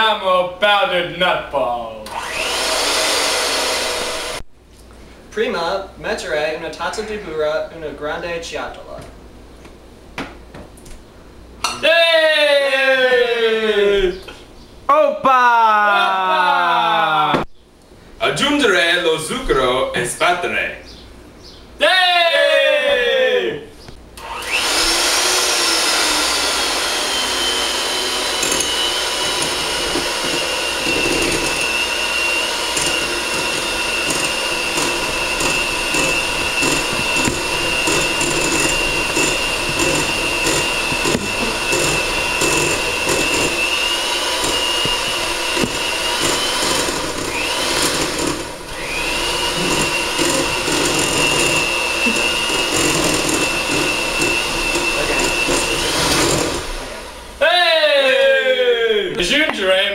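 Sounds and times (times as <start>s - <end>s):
electric hand mixer whining: 2.1s - 4.4s, 24.2s - 57.3s.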